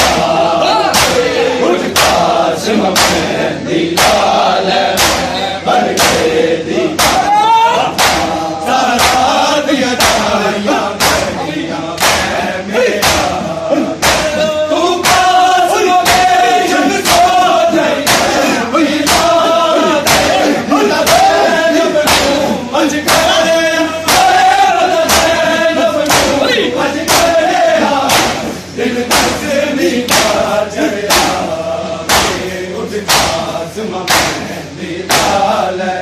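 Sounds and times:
chest slapping rhythm: 0.0 - 35.7
crowd chanting: 0.0 - 36.0
man singing a lament: 6.8 - 36.0.

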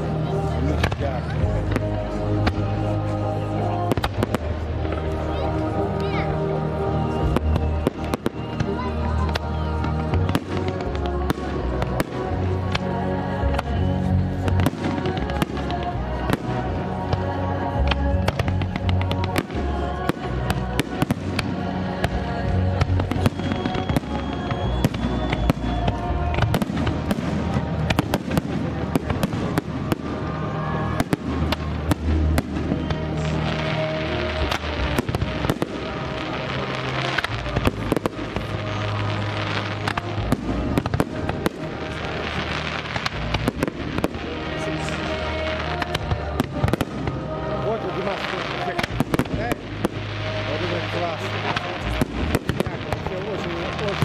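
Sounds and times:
dense fireworks crackling: 0.0 - 54.0
fireworks bursting with bangs: 0.0 - 54.0
music playing: 0.0 - 54.0.

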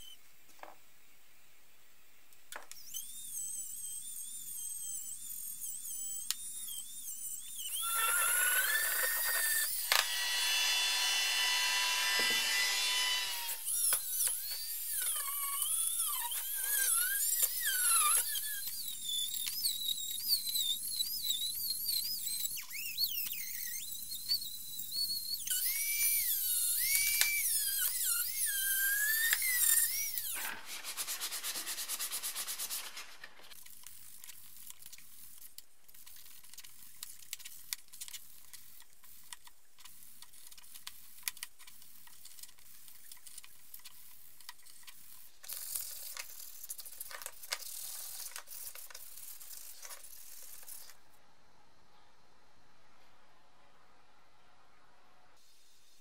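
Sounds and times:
rotary tool whining on metal: 2.7 - 30.6.

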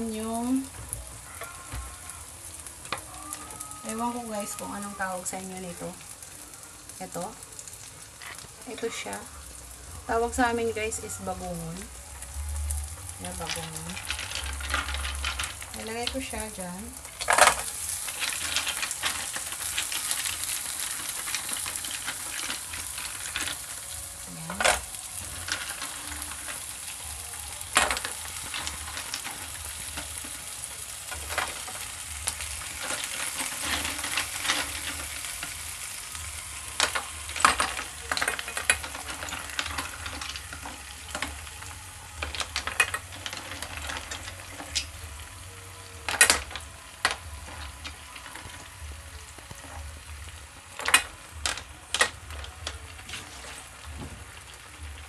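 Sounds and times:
oil sizzling in a pan: 0.0 - 55.0
shells clicking against a pan: 17.1 - 23.9, 27.6 - 45.0.

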